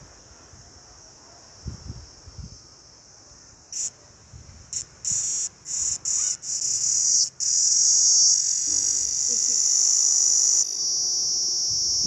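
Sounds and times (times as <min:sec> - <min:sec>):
cicada buzzing: 0:03.7 - 0:04.0, 0:04.7 - 0:12.0.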